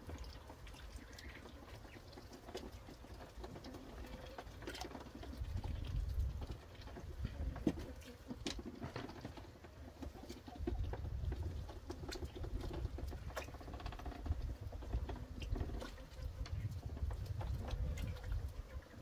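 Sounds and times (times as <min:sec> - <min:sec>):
duck splashing in water: 0:10.0 - 0:19.0.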